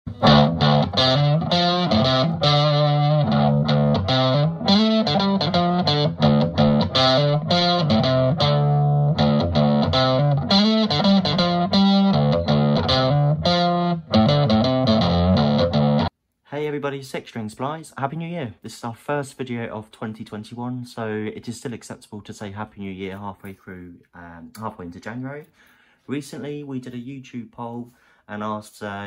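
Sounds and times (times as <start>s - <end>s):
distorted electric guitar chords: 0.1s - 16.1s.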